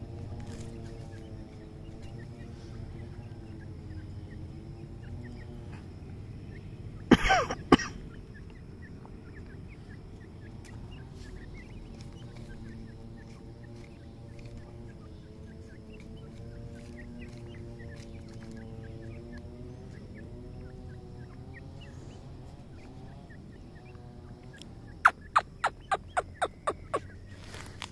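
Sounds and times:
soft bird chirps: 0.0 - 27.9
steady low hum: 0.0 - 27.9
loud cough-like sound: 7.1 - 8.0.

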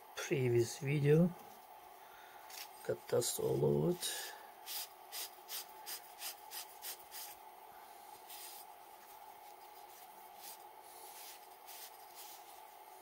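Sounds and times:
faint steady hum: 0.0 - 13.0
cloth rubbing a metal ring: 8.1 - 13.0.

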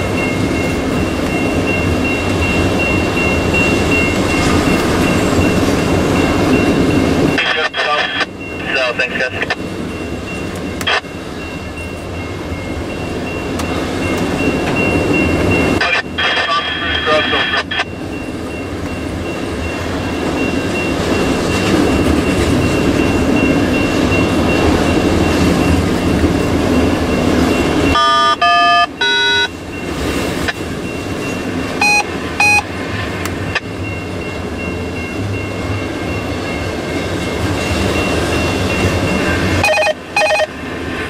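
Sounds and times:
freight train wheels rumbling: 0.0 - 41.0
short beeps: 27.9 - 29.5, 31.8 - 32.7, 39.6 - 40.5
short electronic tones: 28.0 - 29.5, 31.8 - 32.6, 39.6 - 40.5.

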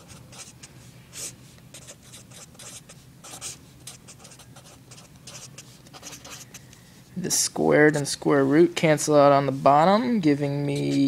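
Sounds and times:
marker scratching on paper: 0.0 - 6.7.

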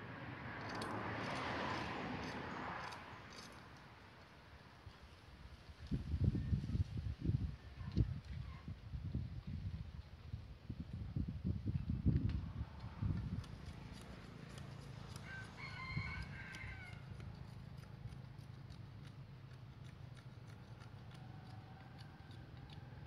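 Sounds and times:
rooster crowing: 15.2 - 17.1.

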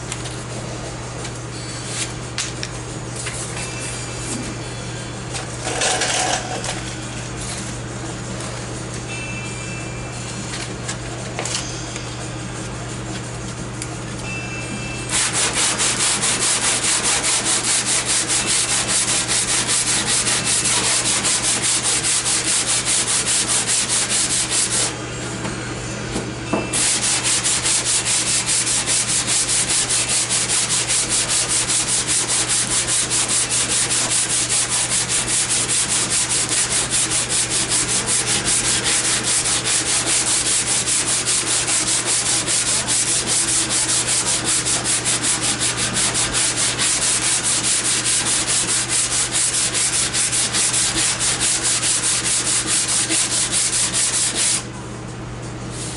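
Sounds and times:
sandpaper rasping by hand: 15.1 - 24.9, 26.8 - 54.7.

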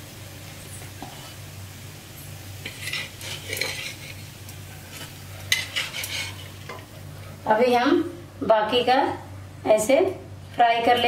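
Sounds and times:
steel spatula scraping iron griddle: 2.6 - 6.8.

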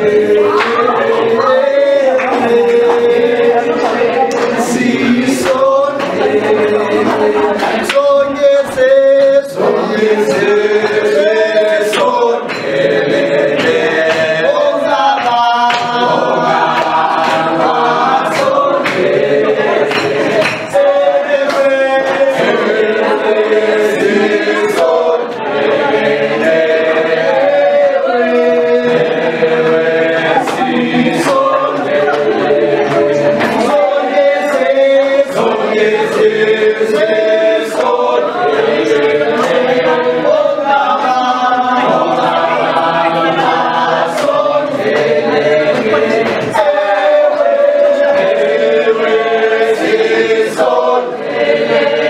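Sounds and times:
group singing in harmony: 0.0 - 52.0
sharp tap keeping time: 10.2 - 27.5.

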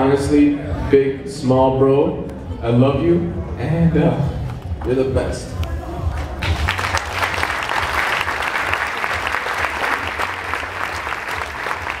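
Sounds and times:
audience applauding: 6.4 - 12.0.

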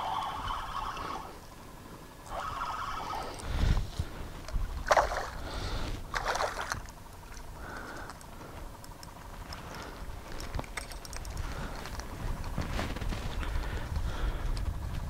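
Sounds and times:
water lapping against boat hull: 4.5 - 8.6.

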